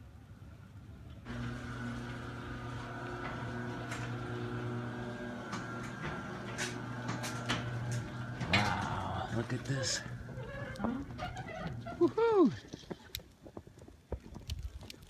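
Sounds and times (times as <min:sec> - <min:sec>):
garage door opener humming: 0:01.2 - 0:12.0
garage door clicks and rattles: 0:01.5 - 0:09.0.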